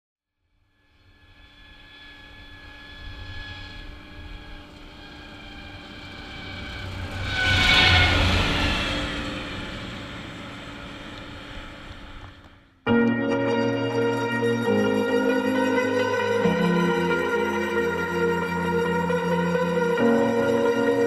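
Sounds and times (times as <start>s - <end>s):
combine diesel engine passing: 3.2s - 12.4s.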